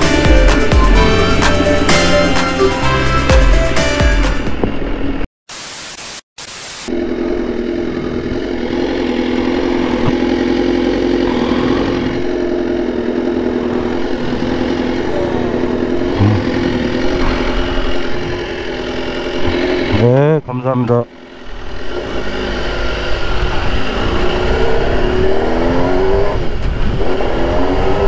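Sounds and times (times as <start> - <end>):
motorcycle engine running: 0.0 - 5.2, 6.9 - 28.0
bursts of static: 5.5 - 6.9.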